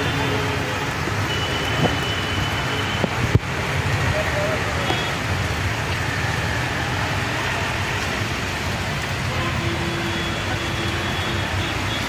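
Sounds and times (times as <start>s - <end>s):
heavy rain on flooded street: 0.0s - 12.0s
vehicles driving through water: 0.0s - 12.0s.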